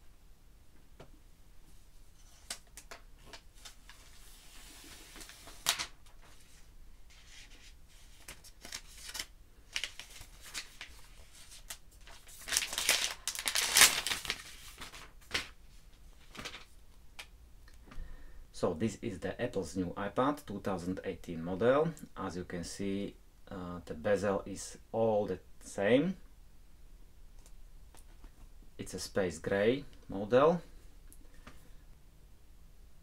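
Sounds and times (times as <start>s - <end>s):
plastic wrap tearing and rustling: 3.6s - 6.2s, 8.1s - 15.6s
plastic wrap crinkling: 8.1s - 15.6s.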